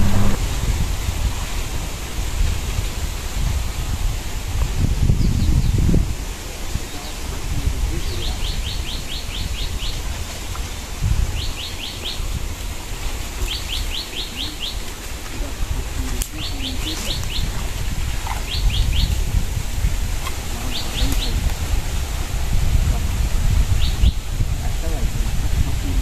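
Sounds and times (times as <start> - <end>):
low rumble: 0.0 - 1.0.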